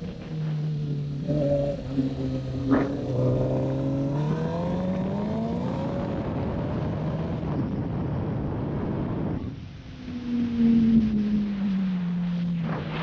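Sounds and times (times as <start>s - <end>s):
motorcycle engine revving: 0.0s - 7.9s
wind and road rush: 0.0s - 13.0s.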